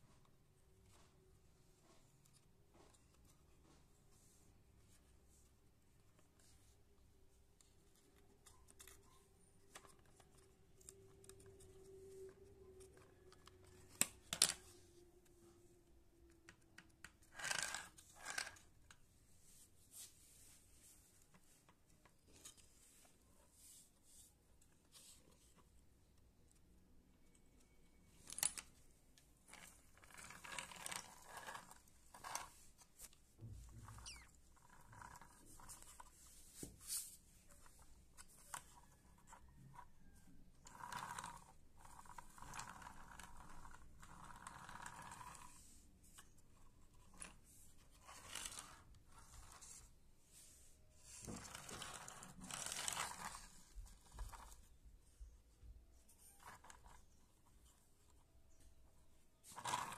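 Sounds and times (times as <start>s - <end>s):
toy wheels scraping over concrete: 17.2s - 18.8s, 29.5s - 32.6s, 40.6s - 46.3s, 47.1s - 49.9s, 51.0s - 54.7s, 59.4s - 59.9s.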